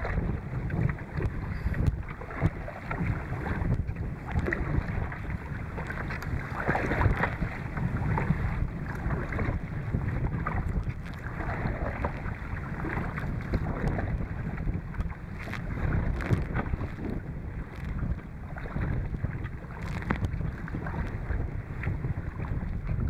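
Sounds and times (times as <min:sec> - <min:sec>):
water splashing against a hull: 0:00.0 - 0:23.0
wind buffeting the microphone: 0:00.0 - 0:23.0.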